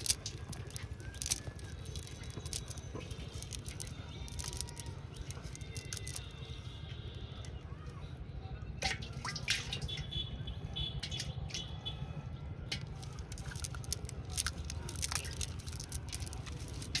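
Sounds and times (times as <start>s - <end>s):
net handling clicks and rustles: 0.0s - 6.4s, 12.7s - 17.0s.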